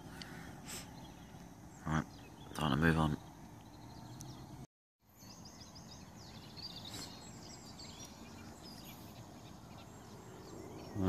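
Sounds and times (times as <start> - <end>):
faint outdoor hiss: 0.0 - 11.0
small birds chirping: 0.0 - 11.0.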